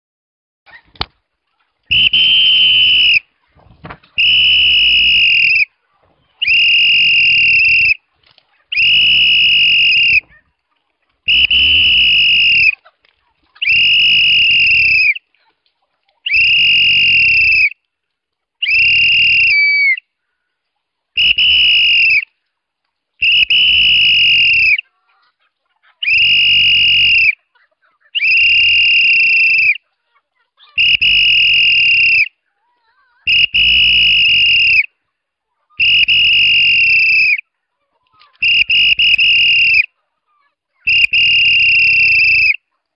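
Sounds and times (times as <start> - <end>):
man whistling high-pitched: 1.9 - 3.2, 4.2 - 5.7, 6.4 - 8.0, 8.8 - 10.3, 11.3 - 12.8, 13.6 - 15.2, 16.3 - 17.8, 18.6 - 20.0, 21.2 - 22.2, 23.2 - 24.8, 26.0 - 27.4, 30.8 - 32.3, 33.3 - 34.9, 35.8 - 37.4, 38.4 - 39.9, 40.9 - 42.6.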